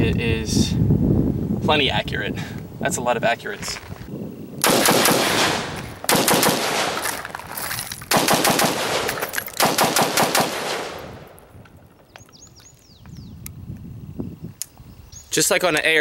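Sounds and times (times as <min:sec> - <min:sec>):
rifle firing rapid shots: 0:04.6 - 0:07.2, 0:08.1 - 0:11.2.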